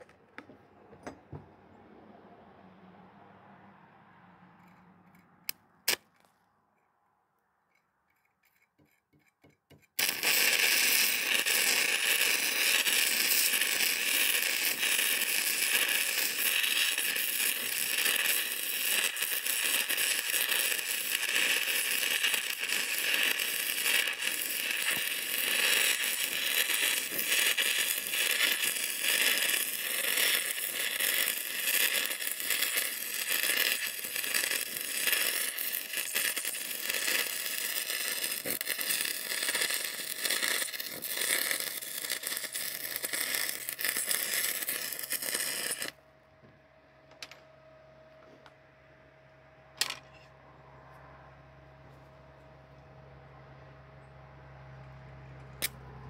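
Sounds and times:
welding arc crackling and sizzling: 9.7 - 46.0.

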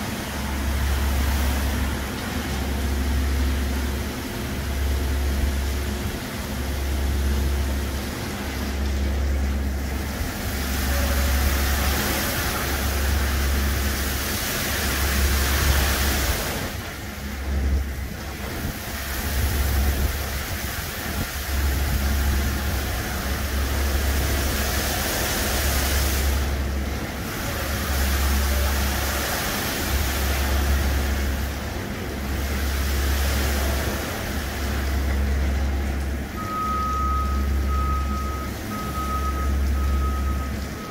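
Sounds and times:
low machine hum: 0.0 - 40.9
water spray hissing: 9.7 - 17.5.

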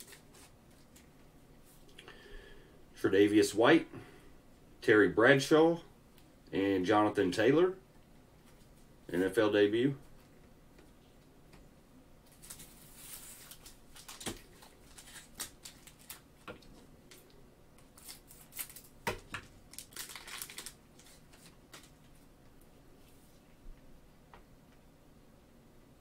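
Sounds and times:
cellophane pack crinkling: 0.0 - 1.1, 12.3 - 22.2.

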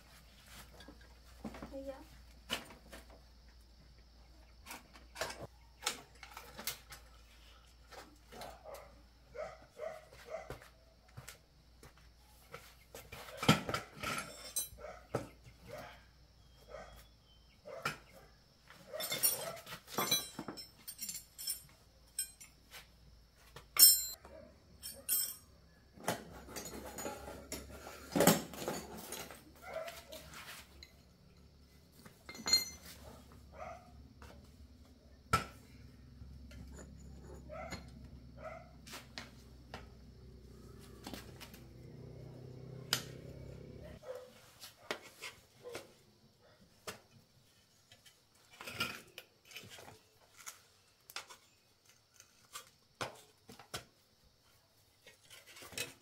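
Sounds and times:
bicycle parts and tools clanking: 4.4 - 8.8, 12.5 - 15.3, 17.7 - 34.6, 35.3 - 46.0, 46.9 - 53.4, 55.0 - 56.0.

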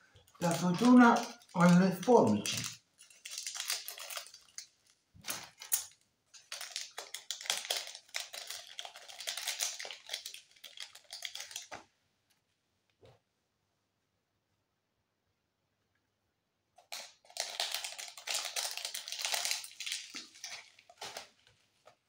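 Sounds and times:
plastic packet crinkling: 0.2 - 11.8, 16.8 - 22.0.

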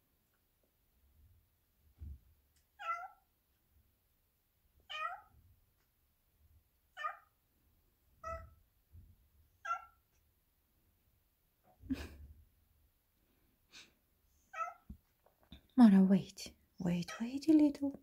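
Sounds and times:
cat meowing: 2.8 - 3.2, 4.8 - 5.3, 7.0 - 7.3, 8.2 - 8.6, 9.6 - 10.1, 14.5 - 14.9.

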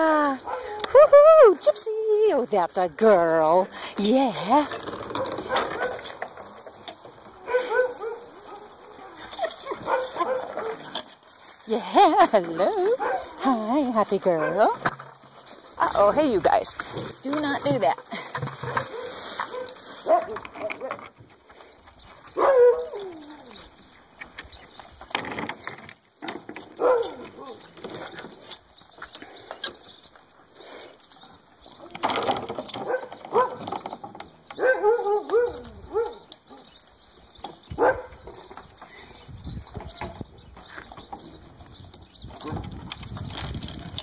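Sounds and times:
dogs whining and yipping: 0.1 - 1.8, 4.7 - 14.9, 22.0 - 25.1, 26.8 - 28.8, 32.7 - 44.0.

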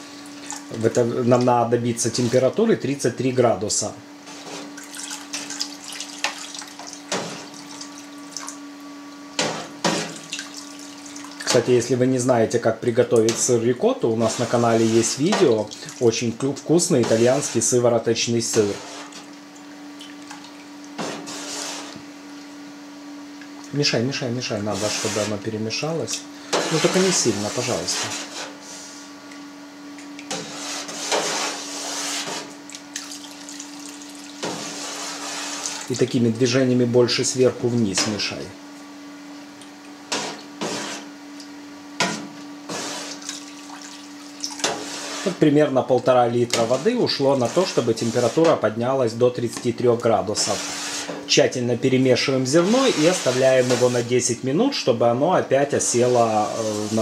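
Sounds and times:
steady low hum: 0.0 - 57.0
water pouring and splashing: 4.7 - 8.6, 10.2 - 11.5, 15.5 - 16.0, 32.7 - 36.1, 43.1 - 44.9
hot water splashing into vat: 32.9 - 34.8.

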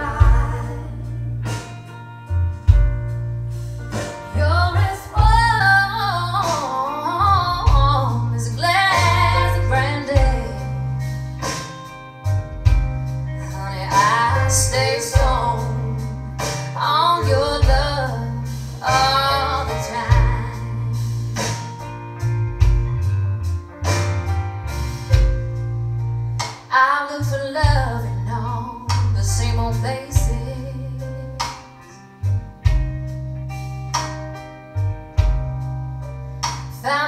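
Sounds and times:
woman singing: 0.0 - 1.2, 4.3 - 10.8, 13.4 - 21.0, 26.7 - 31.4, 36.8 - 37.0
deep bass line: 0.0 - 37.0
guitar: 0.0 - 37.0.

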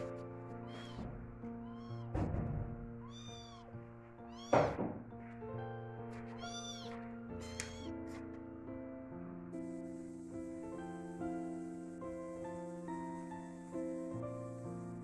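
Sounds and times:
soft piano music: 0.0 - 15.0
kittens mewing: 0.6 - 2.2, 3.0 - 3.7, 4.3 - 4.8, 6.3 - 8.0
loud thump: 2.0 - 3.0, 4.5 - 5.1.

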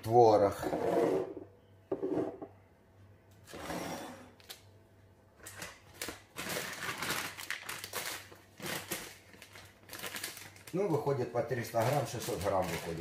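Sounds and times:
plastic packets rustling: 5.4 - 13.0.

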